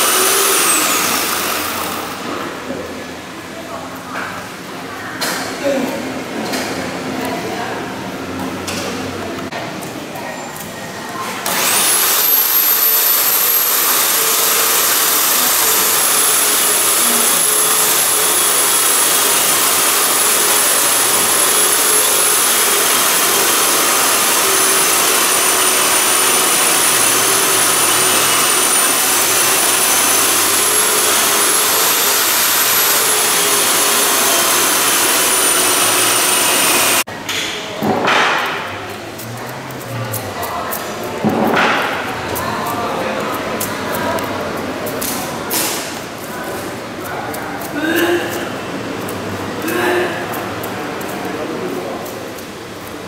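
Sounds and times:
power tool motor whining: 0:00.0 - 0:02.3, 0:11.4 - 0:37.1.

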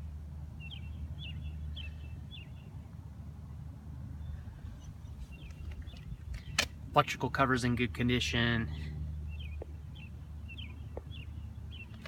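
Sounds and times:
small bird chirping: 0:04.2 - 0:06.6.

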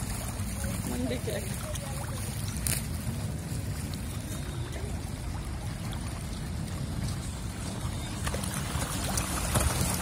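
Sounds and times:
fish splashing and churning water: 0:00.0 - 0:10.0.

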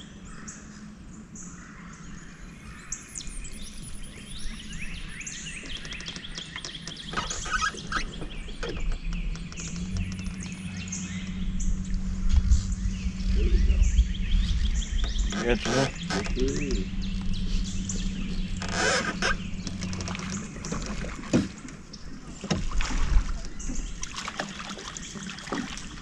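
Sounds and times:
songbirds chirping and trilling: 0:00.0 - 0:26.0
low steady hum: 0:08.0 - 0:26.0.

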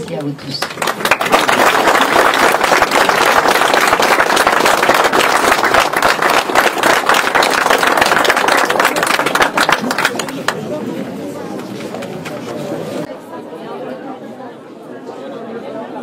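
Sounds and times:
audience applause: 0:00.6 - 0:10.8.

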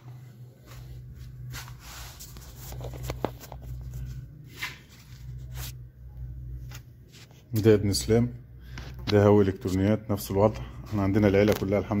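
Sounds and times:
low hum: 0:00.0 - 0:09.0.

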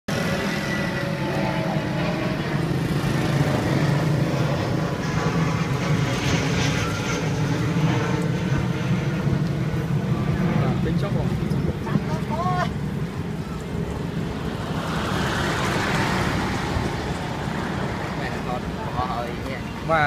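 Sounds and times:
vehicle engine humming: 0:00.1 - 0:20.0.

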